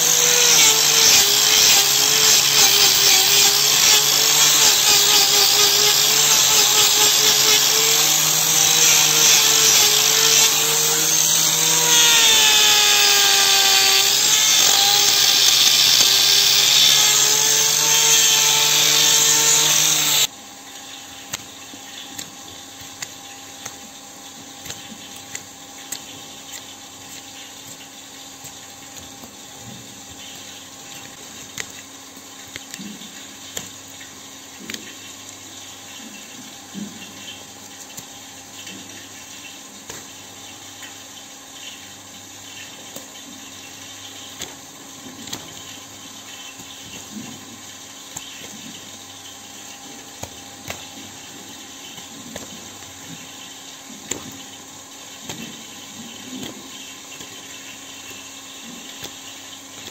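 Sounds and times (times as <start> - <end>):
angle grinder whine: 0.0 - 20.3
knife scraping a hoof: 0.0 - 20.3.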